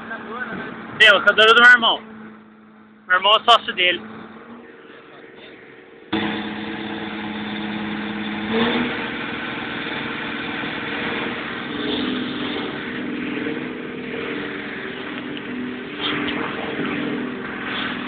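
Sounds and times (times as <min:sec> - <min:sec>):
engine running and revving: 0:03.8 - 0:18.0.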